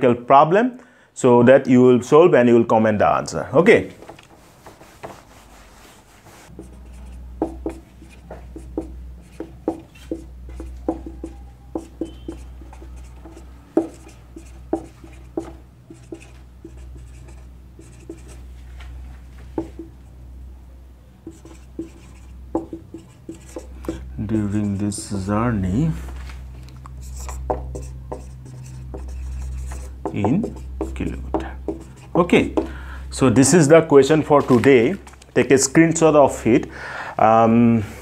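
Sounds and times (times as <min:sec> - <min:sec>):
marker writing on whiteboard: 0:03.9 - 0:18.6, 0:19.4 - 0:20.0, 0:21.2 - 0:25.3, 0:26.8 - 0:32.8
duster wiping whiteboard: 0:03.9 - 0:19.9, 0:21.3 - 0:25.3, 0:27.0 - 0:32.7
steady low hum: 0:03.9 - 0:35.5.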